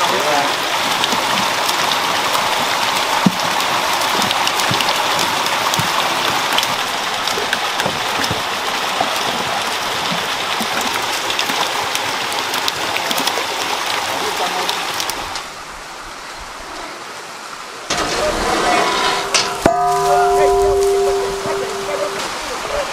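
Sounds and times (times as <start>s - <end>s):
water gushing into tanks: 0.0s - 22.9s
light knocks and splashes: 0.8s - 15.5s.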